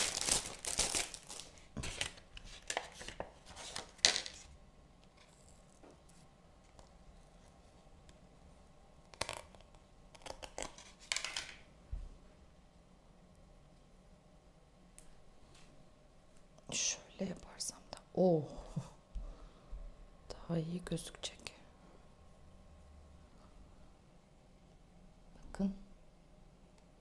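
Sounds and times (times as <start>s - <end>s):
plastic packaging crinkling: 0.0s - 4.5s, 9.1s - 11.6s.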